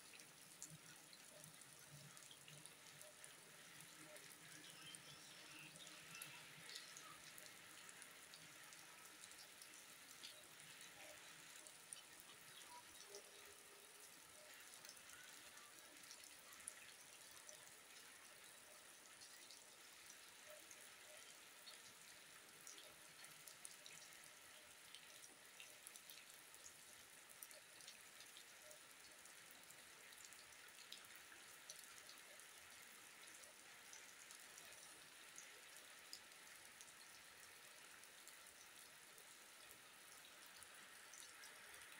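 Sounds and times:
faint steady rain: 0.0 - 41.9
water drips: 0.0 - 41.9.

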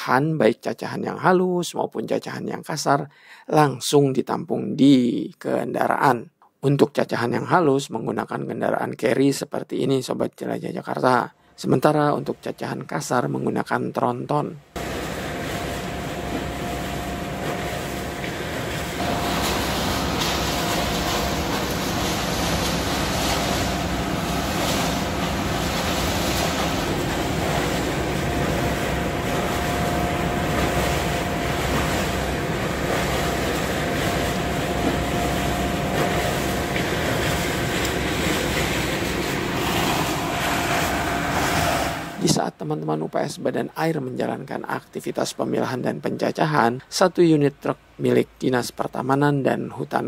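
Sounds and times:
waste shredder running: 14.8 - 42.3
thin steady whine: 14.8 - 46.7.

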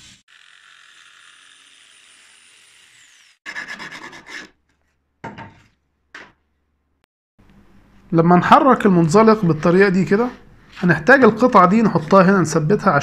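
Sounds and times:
metal file rasping: 0.6 - 4.9.

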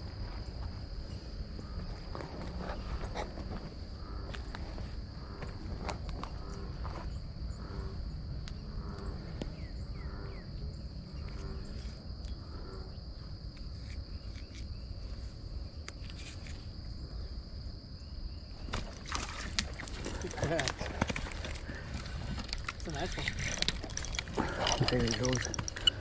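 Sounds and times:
insects droning: 0.0 - 26.0
scattered ticks: 19.8 - 26.0.

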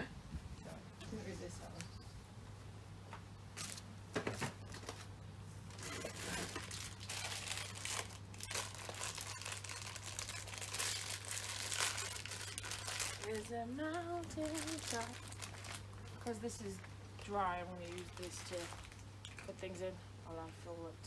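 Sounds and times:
plastic packaging crinkling: 5.7 - 16.4, 17.2 - 19.8.

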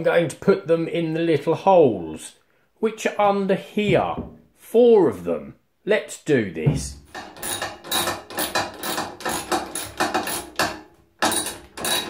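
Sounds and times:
wrench tightening bolts clicking: 7.1 - 12.0.

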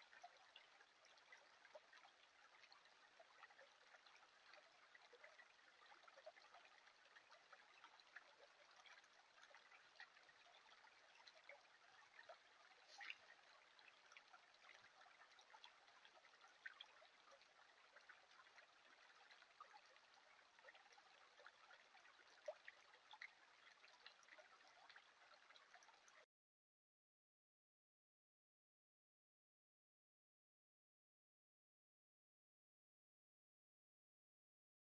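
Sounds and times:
creek water trickling: 0.0 - 26.3
water drips: 0.0 - 26.3.

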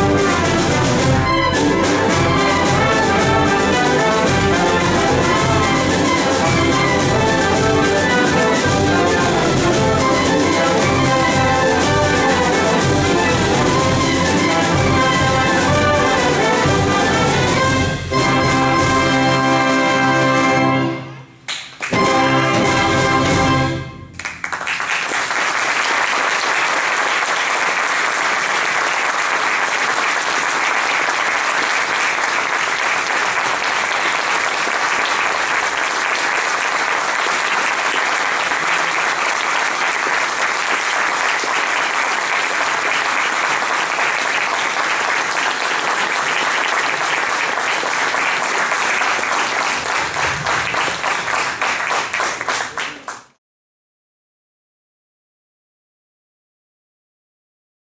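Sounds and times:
audience applauding: 21.5 - 22.0, 24.2 - 53.4.

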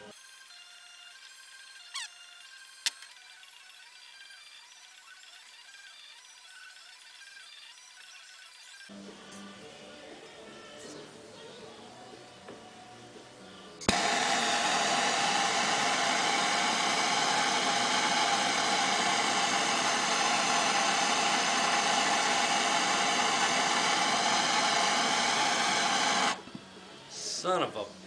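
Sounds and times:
gas torch hissing: 13.8 - 26.4.

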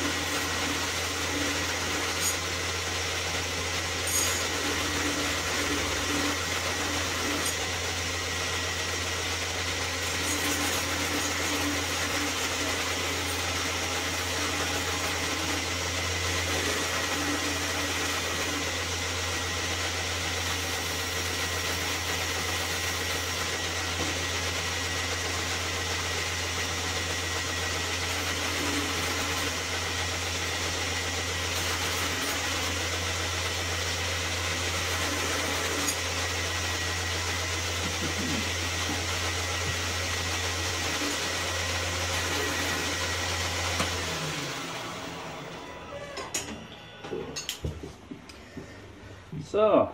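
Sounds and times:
belt grinder motor running: 0.0 - 46.6
knife blade grinding: 1.3 - 2.7, 4.0 - 7.8.

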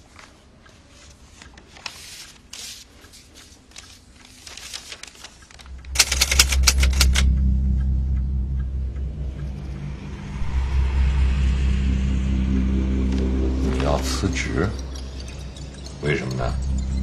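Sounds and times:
paper rustling and crackling: 0.9 - 7.0
sharp rattling clicks: 4.4 - 7.4
loud low rumble: 5.6 - 15.3.

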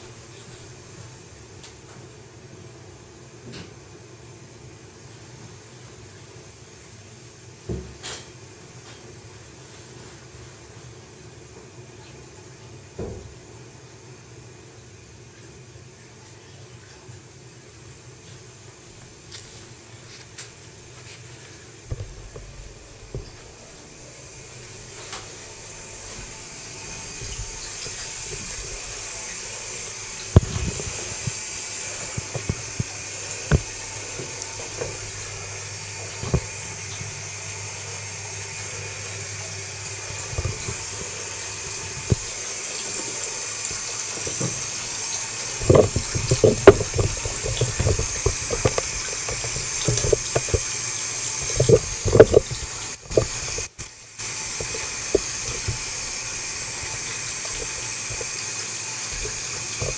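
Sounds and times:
water running into bathtub: 17.7 - 59.9
sharp knocks and clatters: 21.9 - 35.2, 45.6 - 53.8.

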